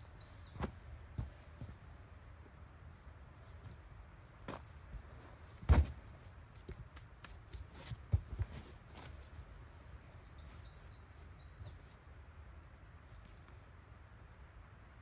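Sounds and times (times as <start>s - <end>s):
bird chirping: 0.0s - 0.6s, 10.1s - 12.0s.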